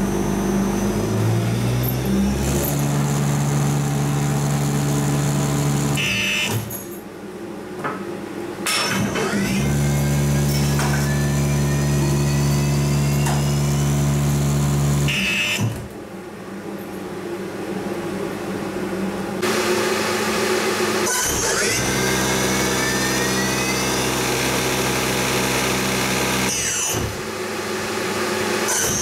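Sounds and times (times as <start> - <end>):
electric motor hum: 0.0 - 6.5, 9.5 - 15.3, 19.4 - 29.0
motor whine rising in pitch: 0.0 - 6.6, 9.5 - 15.6, 19.4 - 29.0.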